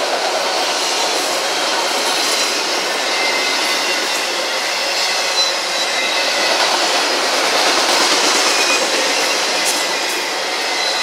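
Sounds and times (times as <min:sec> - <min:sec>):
train wheels rolling on rail: 0:00.0 - 0:11.0
high wheel squeals: 0:02.2 - 0:06.6, 0:08.5 - 0:11.0.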